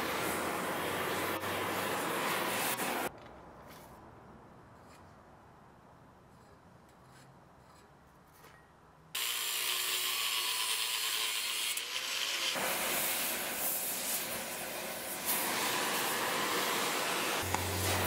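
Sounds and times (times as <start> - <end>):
torch hissing: 0.0 - 3.1, 12.0 - 18.0
angle grinder cutting steel: 9.2 - 13.0.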